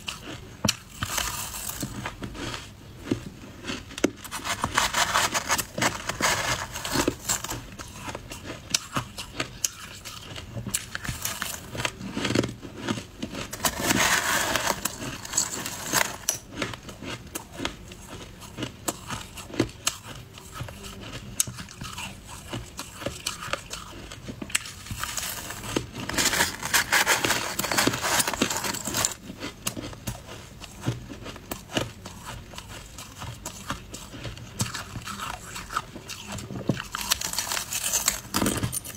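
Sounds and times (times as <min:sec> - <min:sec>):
ice being crunched and chewed: 0:00.0 - 0:38.9
metal spoon scooping slush: 0:04.2 - 0:07.9, 0:13.5 - 0:16.4, 0:24.6 - 0:29.2.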